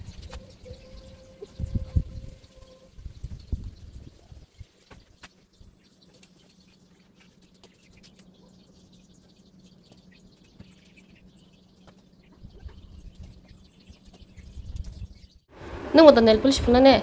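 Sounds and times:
low rumble: 0.0 - 4.6
small birds chirping: 0.0 - 17.0
steady low hum: 0.0 - 17.0.

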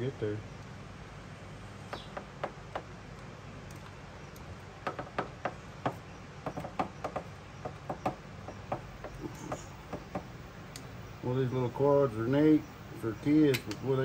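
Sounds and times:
steady low hum: 0.0 - 14.0
clicks and taps of metal parts: 13.4 - 13.9.

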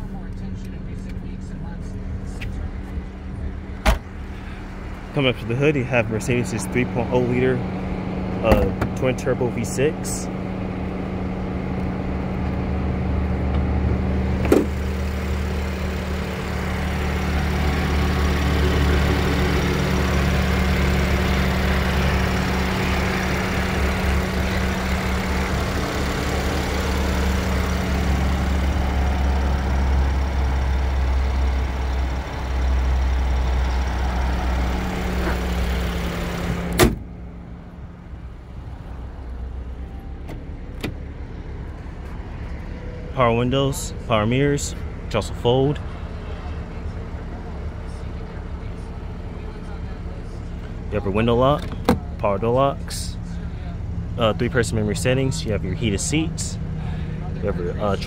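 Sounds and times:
car engine idling: 0.0 - 58.0
car hood slamming shut: 3.8 - 4.1, 14.4 - 14.8, 36.7 - 37.1.

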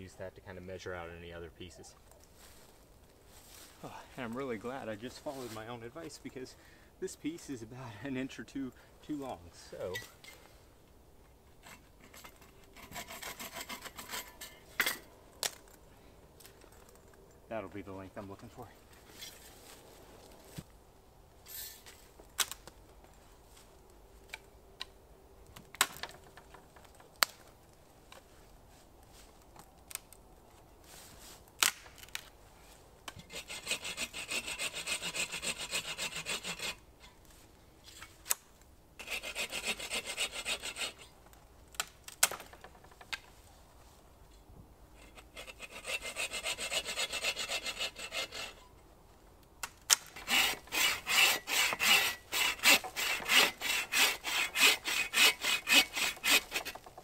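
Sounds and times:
hand saw cutting branch: 11.6 - 15.1, 33.1 - 36.8, 39.0 - 41.1, 45.0 - 48.7, 49.9 - 57.0.

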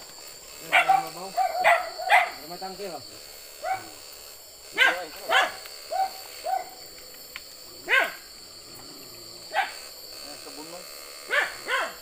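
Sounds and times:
dog barking: 0.7 - 2.4, 3.6 - 3.9, 4.8 - 6.8, 7.9 - 8.2, 9.5 - 9.8, 11.3 - 12.0.

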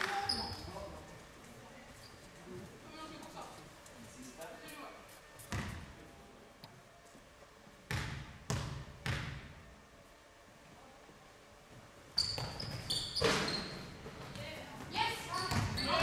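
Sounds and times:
shoes squeaking on court: 0.0 - 1.0, 1.9 - 2.5, 12.2 - 16.0
basketball bouncing on court: 5.5 - 5.8, 7.9 - 9.5, 15.4 - 16.0.

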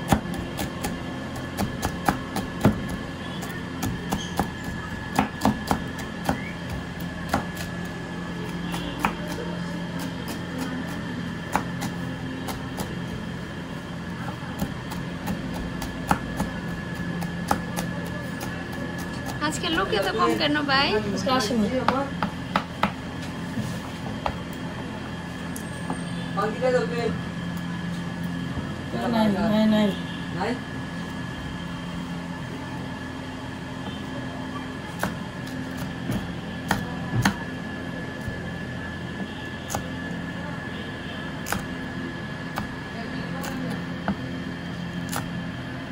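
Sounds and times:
cleaver chopping on wooden board: 0.0 - 3.0, 3.7 - 7.7, 11.4 - 13.0, 14.6 - 19.4, 21.8 - 23.0, 35.0 - 37.4, 41.4 - 41.8
steady hum with high whine: 0.0 - 45.9.

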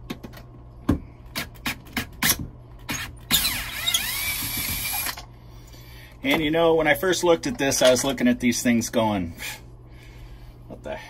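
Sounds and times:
drill motor whining: 2.9 - 5.2.

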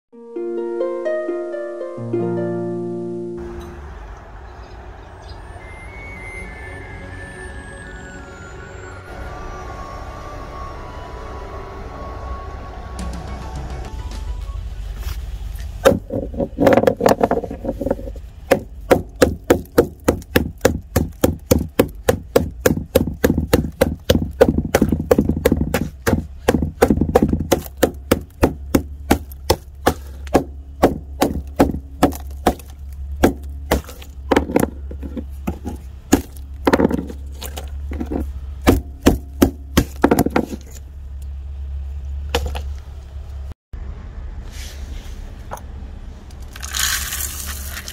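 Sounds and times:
ice being struck and cracking: 30.8 - 34.2.

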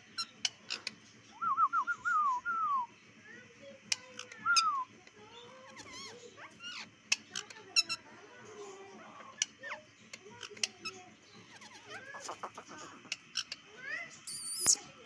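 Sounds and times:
parakeets calling: 0.0 - 1.4, 5.3 - 15.0
sharp clicks: 14.3 - 14.8.

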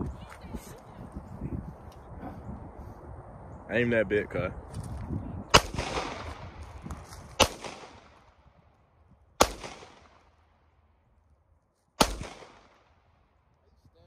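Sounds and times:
pistol shots with echo: 5.5 - 6.5, 7.4 - 8.4, 9.4 - 10.5, 12.0 - 13.0.

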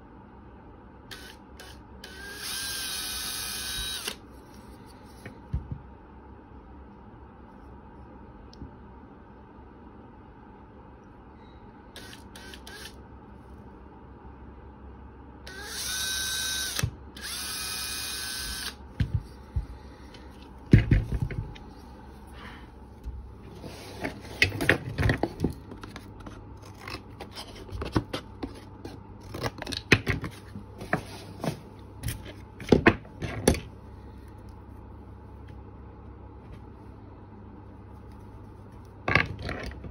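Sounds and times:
cordless drill whining: 1.1 - 4.2, 12.0 - 13.0, 15.5 - 18.8.

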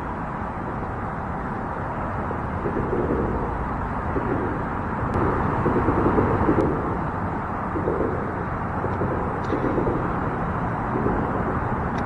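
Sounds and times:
distant road traffic: 0.0 - 12.0.

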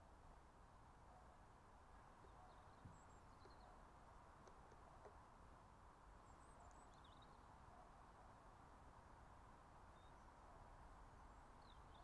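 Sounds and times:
faint high bird chirps: 2.0 - 3.9, 6.2 - 8.0, 9.9 - 10.7, 11.3 - 12.0.

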